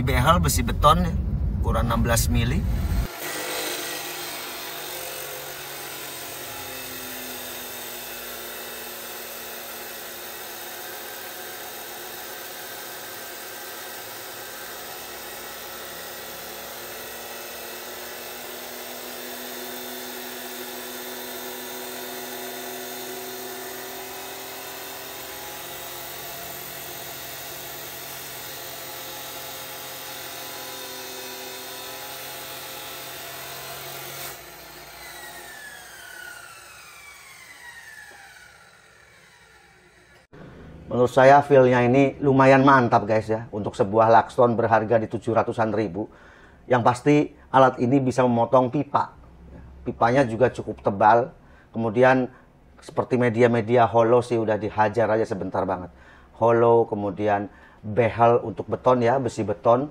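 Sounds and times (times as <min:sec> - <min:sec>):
cut-off saw grinding steel: 0:02.9 - 0:41.4.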